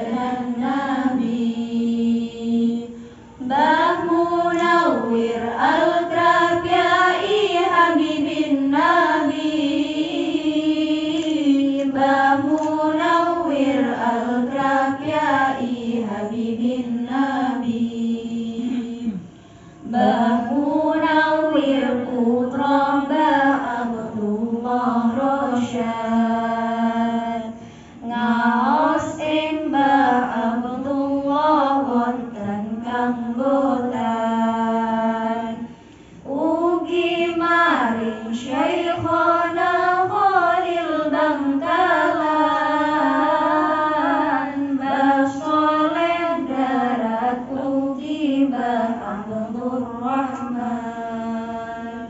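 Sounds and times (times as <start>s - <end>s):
woman singing unaccompanied: 36.3s - 52.0s.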